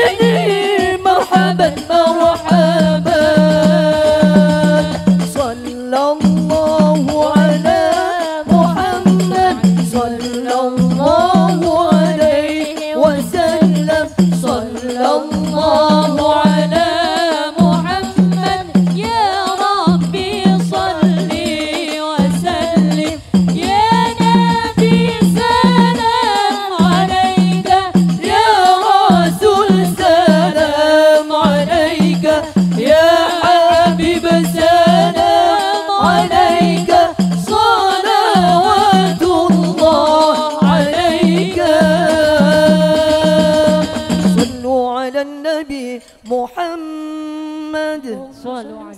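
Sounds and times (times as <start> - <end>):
steady beat: 0.0 - 5.6, 17.6 - 44.6
women singing into microphones: 0.0 - 48.9.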